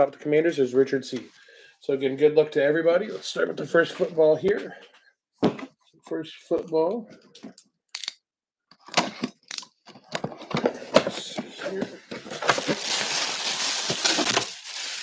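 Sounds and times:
plastic bag crinkling: 12.3 - 15.0.

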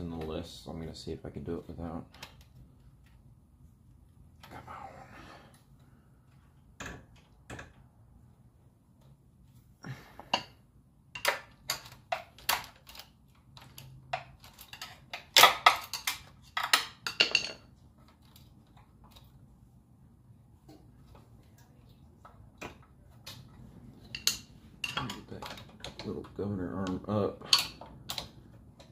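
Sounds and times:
metallic clicks of small parts: 11.2 - 19.4.

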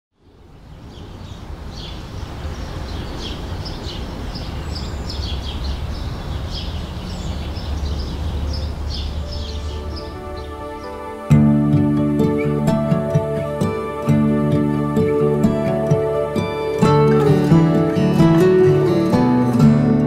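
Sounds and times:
small birds chirping: 0.2 - 20.0.

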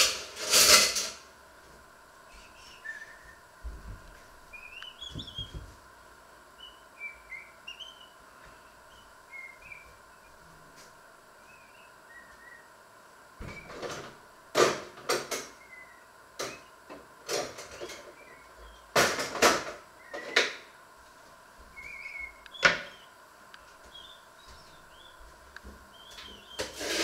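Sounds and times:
faint bird chirps: 2.3 - 3.5, 4.5 - 5.6, 6.6 - 10.4, 11.4 - 12.7, 15.6 - 16.8, 17.7 - 18.9, 20.0 - 20.4, 21.7 - 23.2, 23.9 - 25.2, 25.9 - 26.7.

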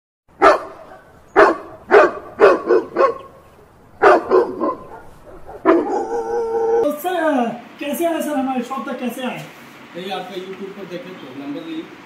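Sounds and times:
dog barking: 0.4 - 3.4, 4.0 - 6.8.

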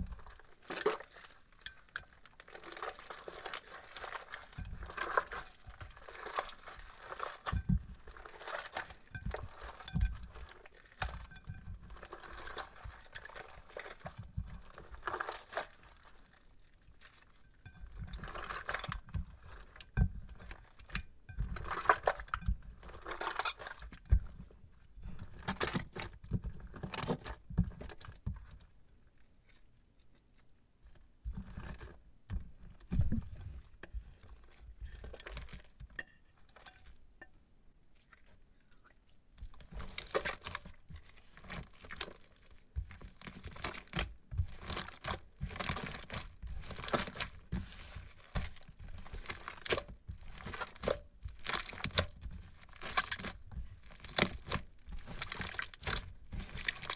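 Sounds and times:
crunchy slime crackling: 0.0 - 26.0, 38.0 - 56.9.

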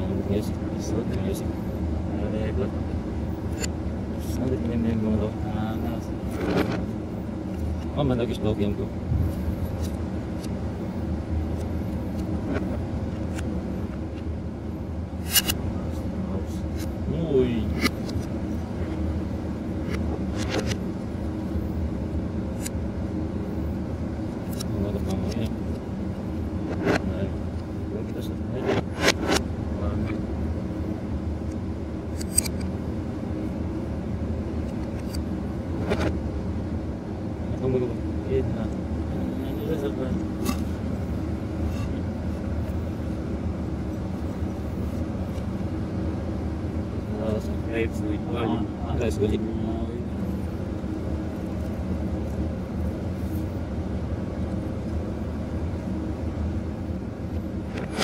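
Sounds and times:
low machinery hum: 0.0 - 58.0
sharp metallic click: 15.2 - 15.6, 32.2 - 32.7
spanner clank: 32.2 - 32.7.

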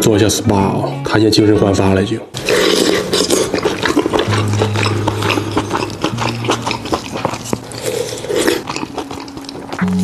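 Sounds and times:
background music low notes: 0.0 - 10.0
wet slurping: 2.3 - 9.8
chewing and mouth clicks: 2.3 - 10.0.

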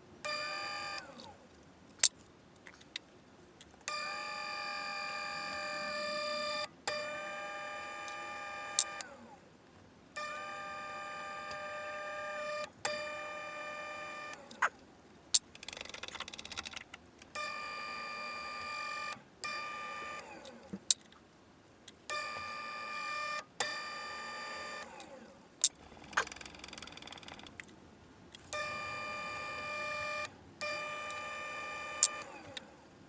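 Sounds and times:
sharp clicks: 15.4 - 17.4, 25.6 - 27.8.

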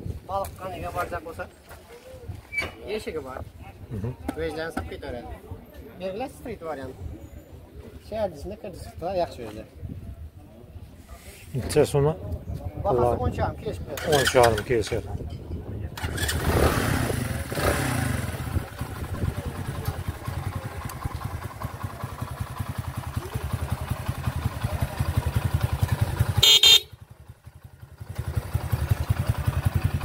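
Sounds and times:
motorcycle engine revving and idling: 13.9 - 15.2, 15.9 - 30.0
motorcycle horn beep: 26.3 - 27.1.

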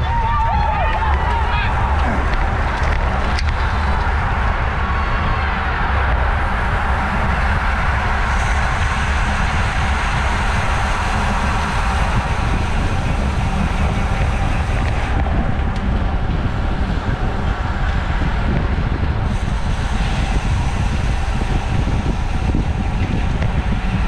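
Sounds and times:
tyre and road noise: 0.0 - 24.0
wind rushing over microphone: 0.0 - 24.0.

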